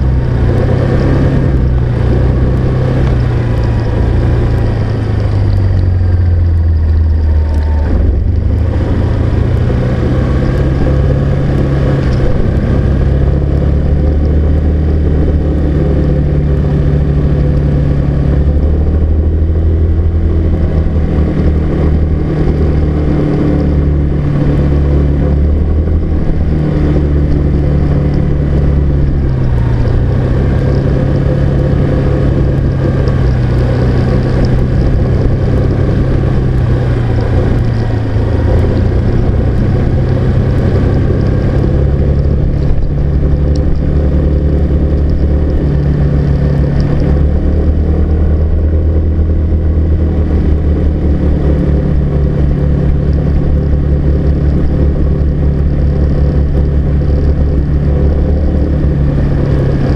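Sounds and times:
car engine: 0:00.0 - 0:59.9
road noise: 0:00.0 - 0:59.9.

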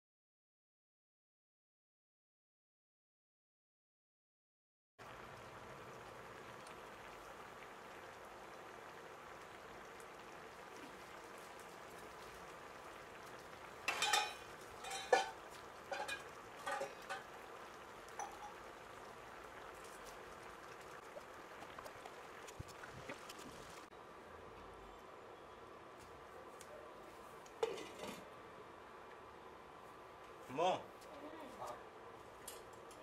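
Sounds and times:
gravy bubbling and popping: 0:05.0 - 0:23.9.

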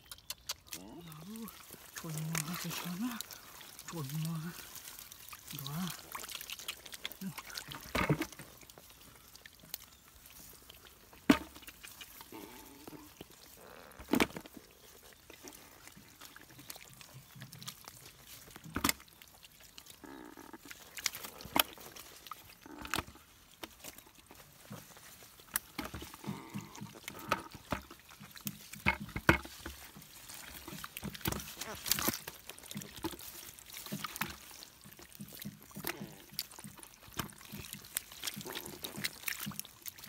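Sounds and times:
sharp wet slaps: 0:00.0 - 0:08.4, 0:11.2 - 0:12.3, 0:30.3 - 0:40.0
fish splashing in water: 0:00.0 - 0:40.0.

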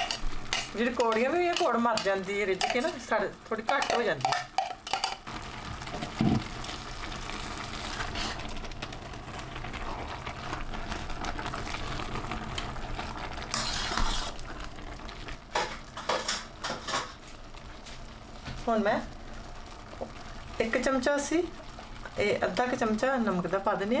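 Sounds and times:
spoon scraping and clinking in pot: 0:00.0 - 0:03.1, 0:03.7 - 0:05.3.

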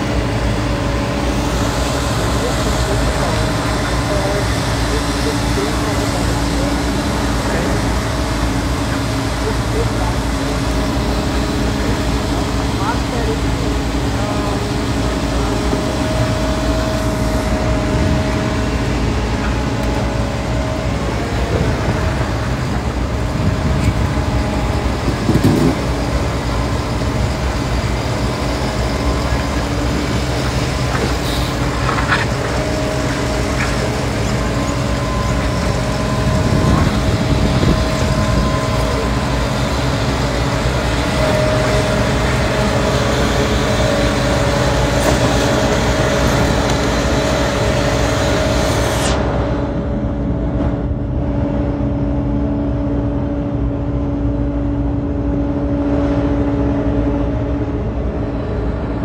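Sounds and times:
excavator diesel engine and hydraulics: 0:00.0 - 0:59.0
higher steady tone: 0:13.6 - 0:45.0.

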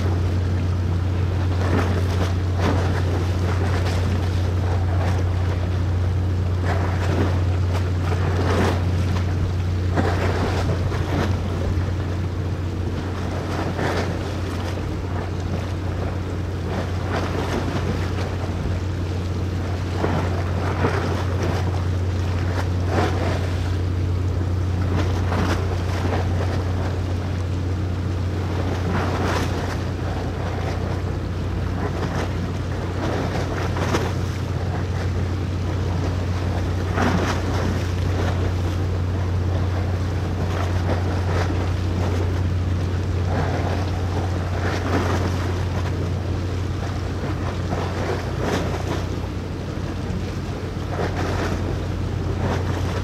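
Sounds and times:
wind buffeting microphone: 0:00.0 - 0:27.4
ship engine humming: 0:00.0 - 0:53.0.

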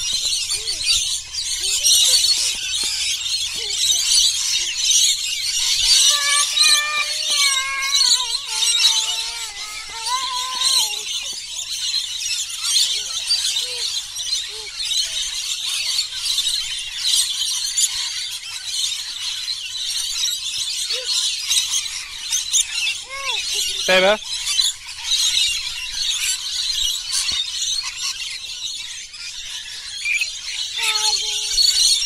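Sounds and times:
lorikeets screeching and chattering: 0:00.0 - 0:32.0
young child's voice: 0:00.4 - 0:04.7, 0:05.8 - 0:11.4, 0:12.9 - 0:14.8, 0:20.9 - 0:21.2, 0:22.9 - 0:24.1, 0:30.8 - 0:32.0.

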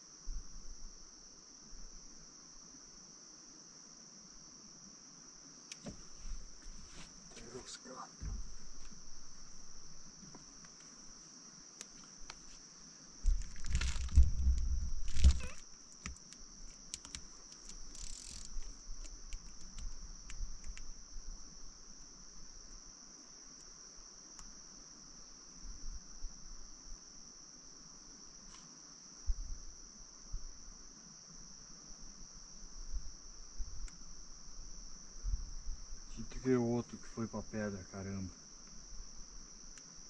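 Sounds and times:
insect trill: 0:00.0 - 0:40.0
soft knock: 0:08.2 - 0:08.6.

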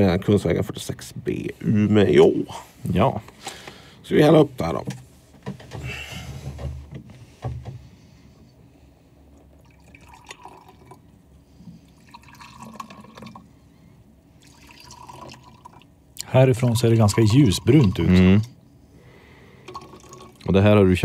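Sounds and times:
faint trickling and dripping: 0:09.3 - 0:13.7, 0:14.3 - 0:18.6, 0:19.5 - 0:20.6
coffee pouring into cups: 0:09.6 - 0:11.2, 0:11.8 - 0:13.5, 0:14.4 - 0:15.9, 0:16.6 - 0:18.2, 0:19.6 - 0:20.6.

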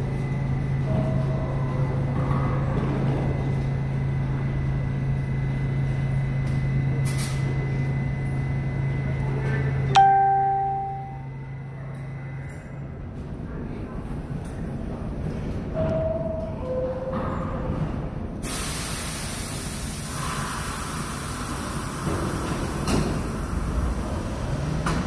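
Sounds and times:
train equipment humming: 0:00.0 - 0:13.3.

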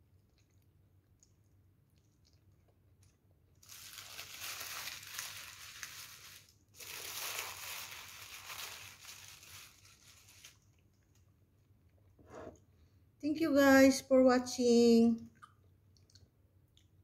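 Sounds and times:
wrapper crinkling: 0:03.6 - 0:10.8.

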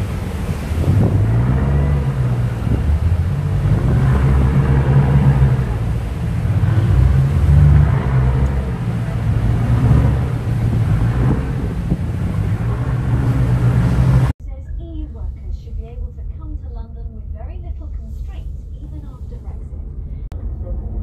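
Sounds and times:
wind on microphone: 0:00.0 - 0:14.3
rushing wake water: 0:00.0 - 0:14.4
boat engines rumbling: 0:00.0 - 0:21.0.

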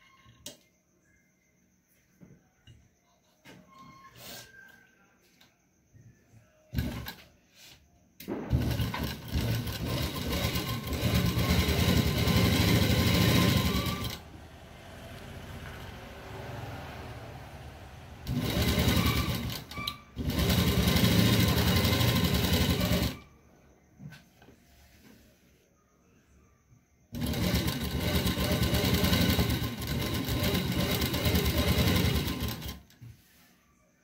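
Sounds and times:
sewing machine stitching: 0:06.7 - 0:07.2, 0:08.4 - 0:14.2, 0:18.2 - 0:23.3, 0:27.1 - 0:32.9.

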